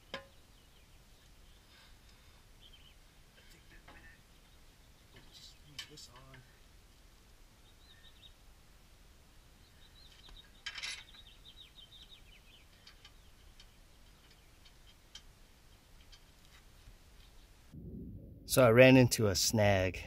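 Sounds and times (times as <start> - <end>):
birds chirping: 0.0 - 6.7, 7.5 - 8.5, 9.3 - 16.4.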